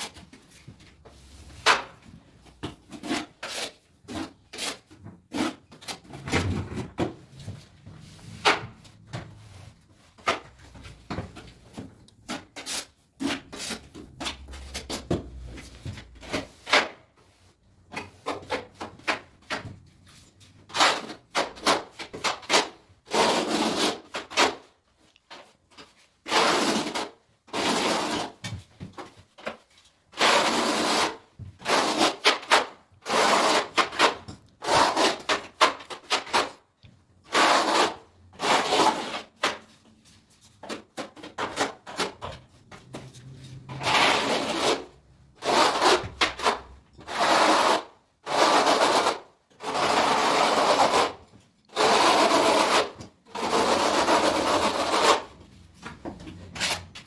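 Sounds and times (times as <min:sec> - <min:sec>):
trowel scraping wet adhesive: 0:02.9 - 0:06.0.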